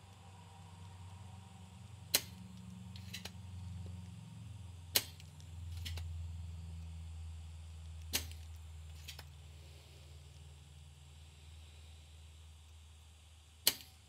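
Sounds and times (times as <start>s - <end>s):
low steady hum: 0.0s - 14.0s
desoldering pump snapping: 2.1s - 3.4s, 4.9s - 6.1s, 7.8s - 9.3s, 13.6s - 14.0s.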